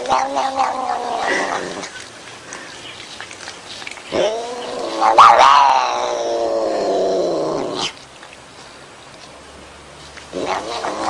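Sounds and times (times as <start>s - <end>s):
cat yowling: 4.2s - 7.0s.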